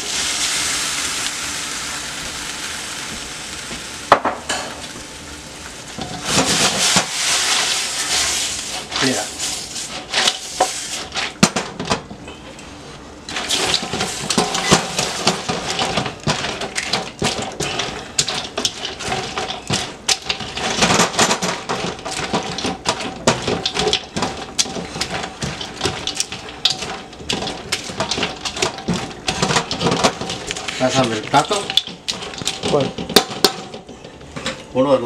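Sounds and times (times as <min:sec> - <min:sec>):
chips rustling: 0:13.3 - 0:33.5.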